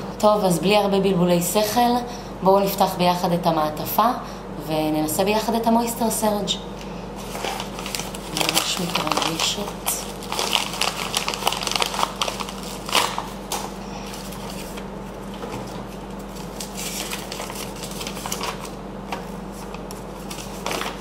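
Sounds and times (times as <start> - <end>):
envelope tearing open: 7.2 - 14.8, 16.3 - 18.8, 19.7 - 21.0
paper crinkling and rustling: 7.2 - 21.0.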